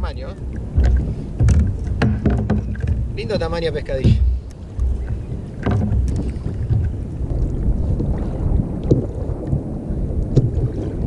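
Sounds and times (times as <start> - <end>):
wind rumbling on microphone: 0.0 - 11.0
light knocks: 0.8 - 3.1, 3.9 - 7.0.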